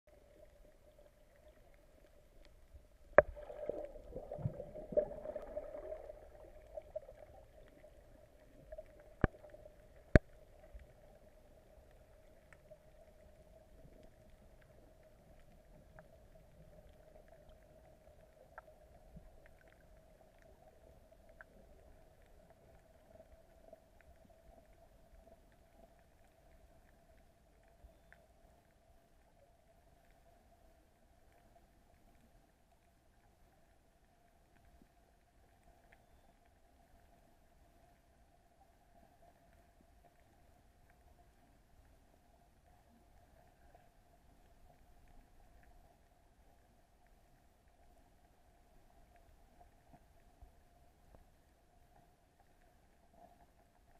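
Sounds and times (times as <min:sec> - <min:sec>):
splashing and bubbles: 0:00.1 - 0:11.0
steady underwater hum: 0:00.1 - 0:53.9.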